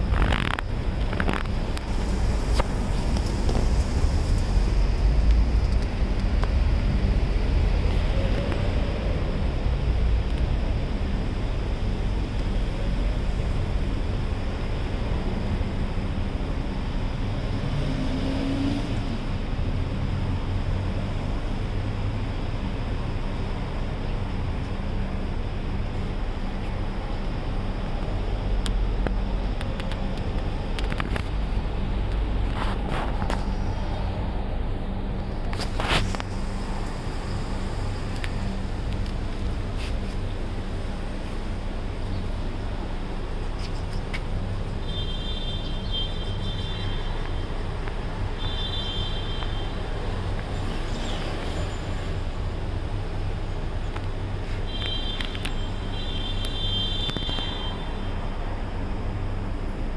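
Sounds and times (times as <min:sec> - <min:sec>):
low background rumble: 0:00.0 - 0:17.5
low mechanical rumble: 0:00.0 - 0:18.2, 0:18.8 - 0:59.9.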